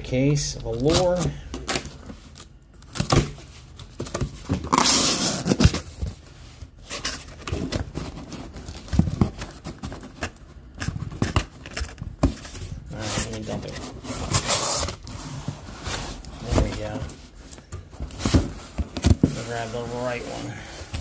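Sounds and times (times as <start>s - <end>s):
packing tape tearing: 4.6s - 5.8s
cardboard scraping and knocking: 7.0s - 21.0s.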